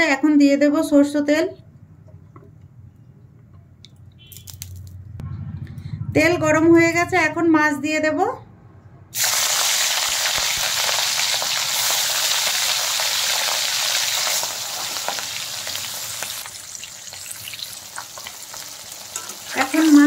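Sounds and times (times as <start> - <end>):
oil spitting and crackling: 9.2 - 19.8
fish sizzling in hot oil: 9.2 - 20.0.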